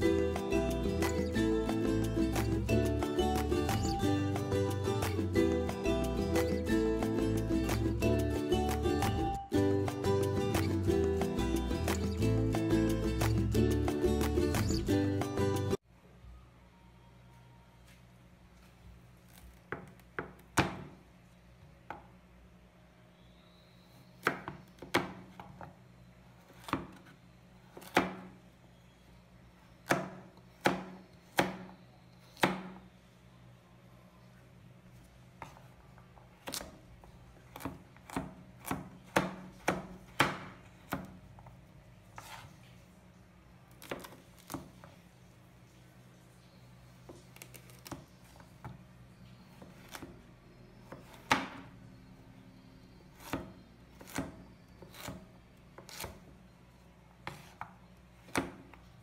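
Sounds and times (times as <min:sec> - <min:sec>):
knife chopping on wooden board: 0:27.8 - 0:28.3, 0:29.8 - 0:31.7, 0:32.4 - 0:32.8, 0:37.5 - 0:41.2, 0:50.9 - 0:51.7, 0:53.2 - 0:55.2.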